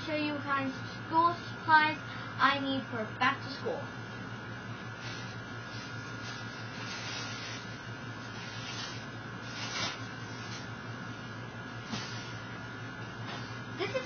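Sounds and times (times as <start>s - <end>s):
steady hum: 0.0s - 14.0s.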